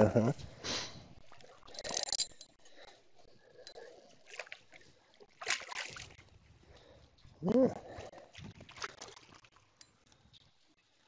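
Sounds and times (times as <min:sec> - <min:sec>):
water splashing: 0:03.4 - 0:06.4, 0:07.4 - 0:09.8
person grunting: 0:07.4 - 0:07.8.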